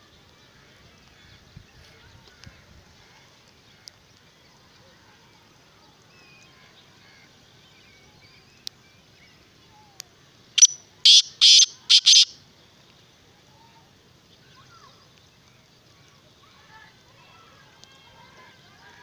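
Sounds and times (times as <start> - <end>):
francolin harsh call: 10.6 - 12.4.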